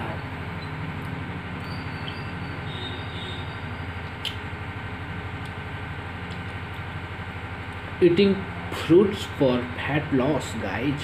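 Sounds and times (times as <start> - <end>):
low mechanical rumble with flutter: 0.0 - 11.0
sharp click: 4.1 - 4.4.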